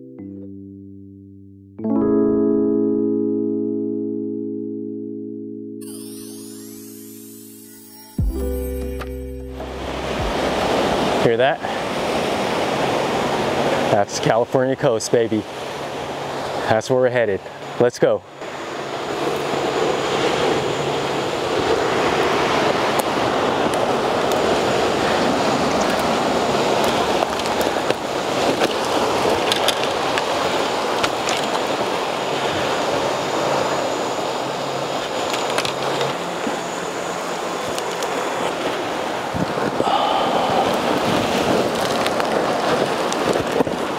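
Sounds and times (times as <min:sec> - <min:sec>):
ocean surf rushing: 0:05.8 - 0:43.9.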